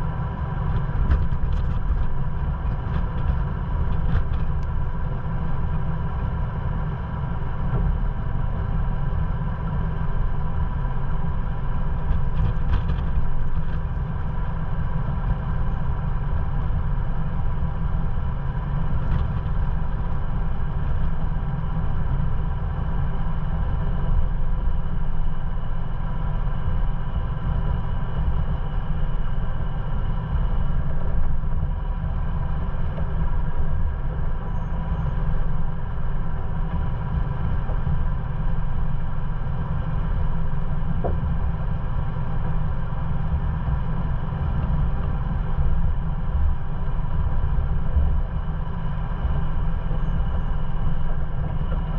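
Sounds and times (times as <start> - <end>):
engine running with low rumble: 0.0 - 51.9.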